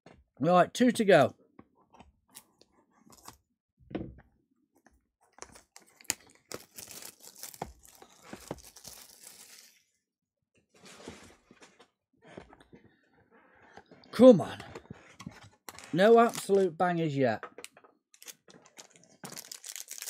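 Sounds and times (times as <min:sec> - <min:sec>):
packaging tearing and crinkling: 0:05.5 - 0:09.8, 0:18.2 - 0:20.0.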